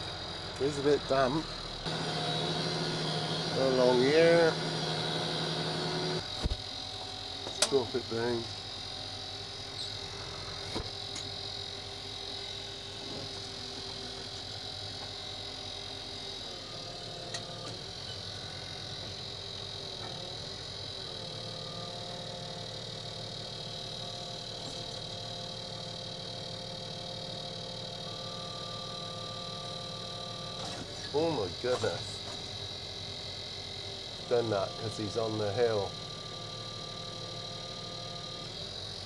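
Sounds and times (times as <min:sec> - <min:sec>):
tractor engine whining: 0:00.0 - 0:08.5, 0:16.0 - 0:32.8, 0:34.1 - 0:39.0.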